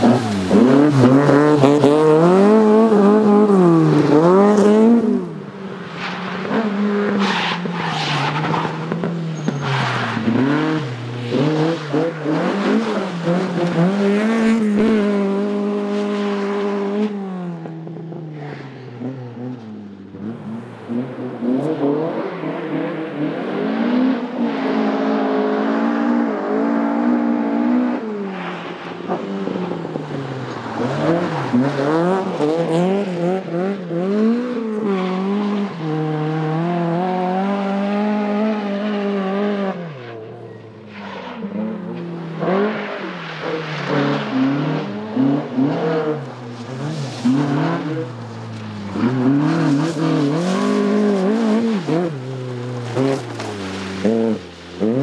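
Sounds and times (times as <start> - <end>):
rally car engine revving: 0.0 - 55.0.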